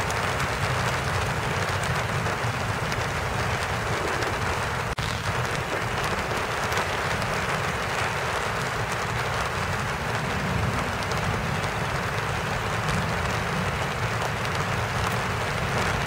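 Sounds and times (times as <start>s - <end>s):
raindrop ticks: 0.0s - 16.0s
steady rain hiss: 0.0s - 16.0s.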